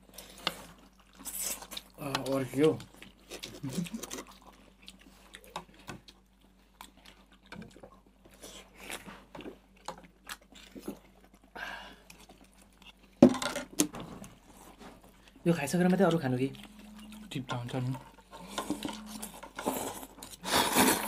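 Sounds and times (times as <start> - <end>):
chewing: 0.0 - 13.2, 14.3 - 21.0
slurping noodles: 18.4 - 21.0.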